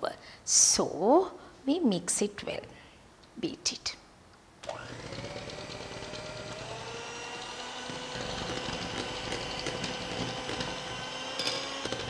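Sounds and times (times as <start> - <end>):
electric hand mixer whine: 4.6 - 12.0.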